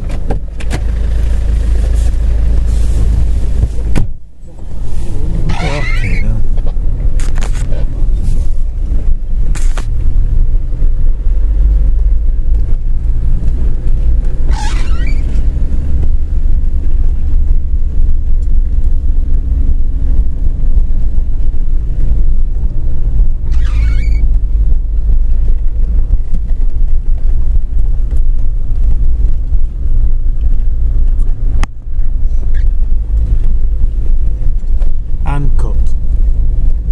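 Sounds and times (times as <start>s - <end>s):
vehicle engine rumbling: 0.0s - 36.9s
high squeaks: 5.4s - 6.4s, 14.5s - 15.5s, 23.4s - 24.3s.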